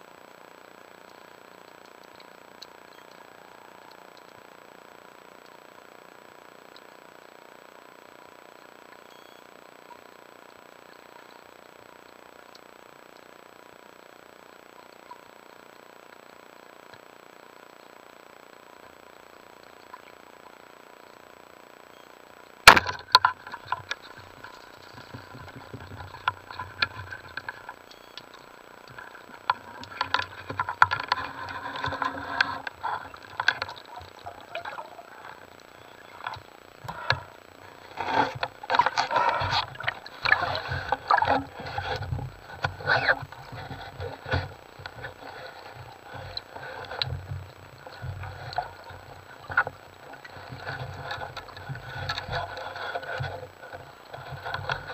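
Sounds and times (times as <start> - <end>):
speargun firing underwater: 22.7 - 23.6.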